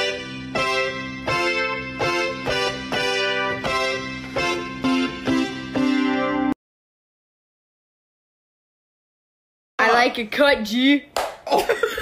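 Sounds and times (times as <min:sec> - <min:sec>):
electronic keyboard piano chords: 0:00.0 - 0:06.6.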